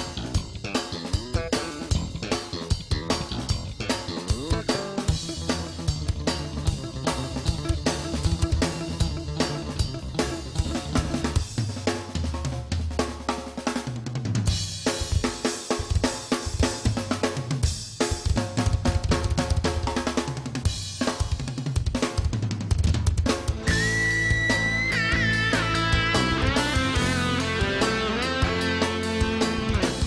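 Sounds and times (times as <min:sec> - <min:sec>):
electric guitar: 0:00.0 - 0:11.5, 0:23.5 - 0:30.0
bass guitar notes: 0:00.0 - 0:11.6, 0:23.4 - 0:30.0
drum kit beat: 0:00.0 - 0:30.0.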